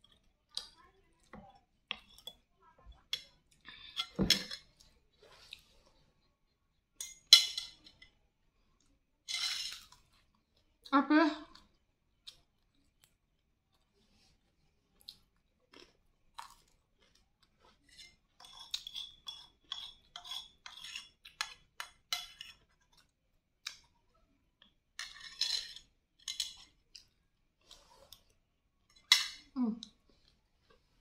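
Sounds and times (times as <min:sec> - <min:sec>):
metal spoon scraping ceramic bowl: 0:17.9 - 0:22.7, 0:25.0 - 0:26.6.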